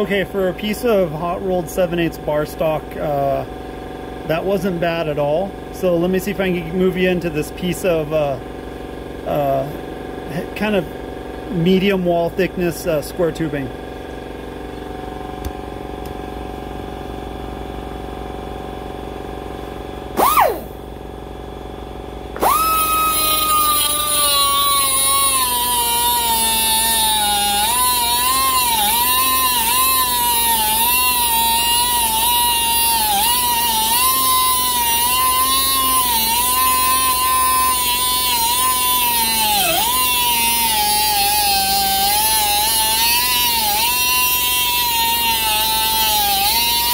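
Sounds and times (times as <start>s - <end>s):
air die grinder whining: 20.2s - 20.8s, 22.3s - 46.9s
disc grinding steel: 22.4s - 46.9s.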